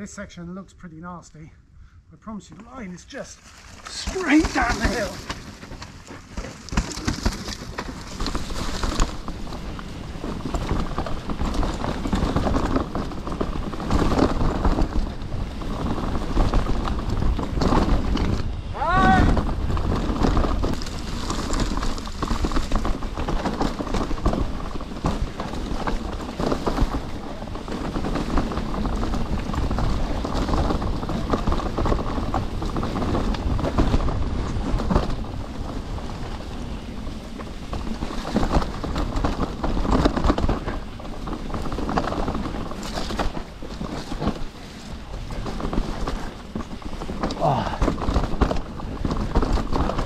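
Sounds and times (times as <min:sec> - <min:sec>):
bike rattling and clattering: 0:03.2 - 0:50.0
bike tyres rumbling over rocks: 0:03.2 - 0:50.0.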